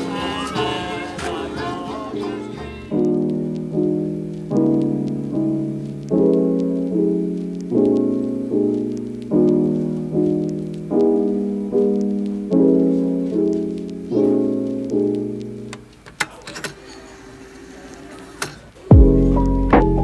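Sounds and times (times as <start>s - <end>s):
soft piano chords: 0.0s - 15.9s, 18.9s - 20.0s
sharp clicks: 2.9s - 12.4s, 14.7s - 16.8s.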